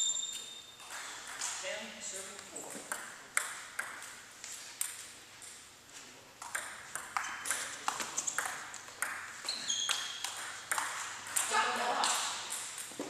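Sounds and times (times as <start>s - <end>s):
ping pong ball hitting paddles: 0.8s - 1.6s, 2.6s - 4.2s, 6.4s - 13.0s.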